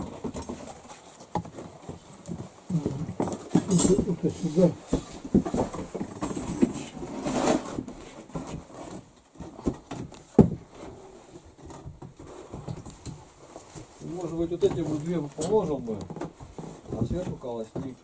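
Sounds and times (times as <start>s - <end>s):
bricks knocking and scraping: 0.0s - 10.7s.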